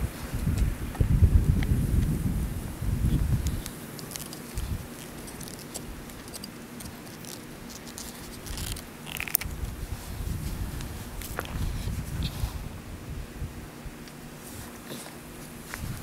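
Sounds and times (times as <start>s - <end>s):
wind rumbling on microphone: 0.0s - 6.3s, 7.9s - 16.0s
plastic pipe fittings clicking: 3.4s - 9.5s.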